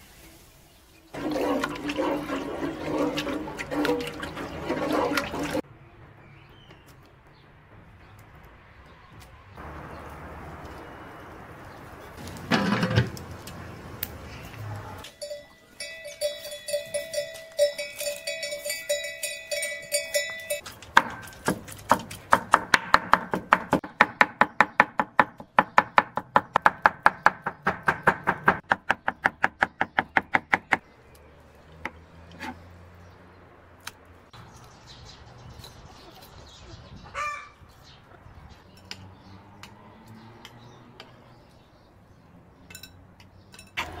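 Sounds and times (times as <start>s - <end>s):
knife chopping on wooden board: 21.0s - 30.8s.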